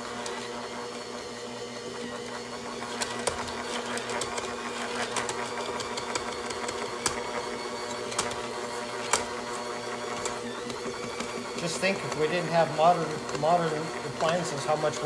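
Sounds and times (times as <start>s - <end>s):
stand mixer motor running: 0.0s - 15.0s.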